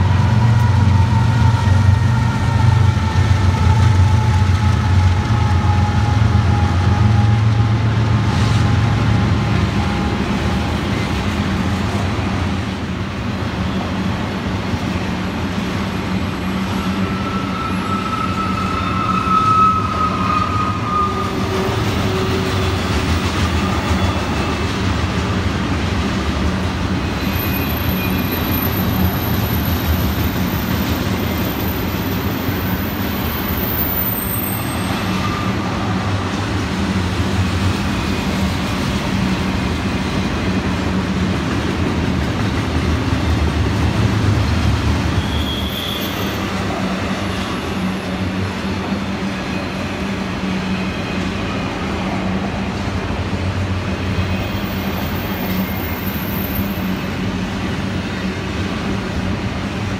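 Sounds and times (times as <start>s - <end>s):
rolling noise of freight cars: 0.0s - 59.9s
faint wheel squeals: 45.2s - 46.6s.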